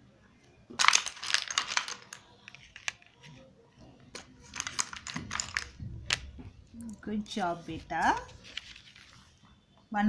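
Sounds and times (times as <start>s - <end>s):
plastic blocks clicking: 0.7s - 3.4s, 4.1s - 6.3s.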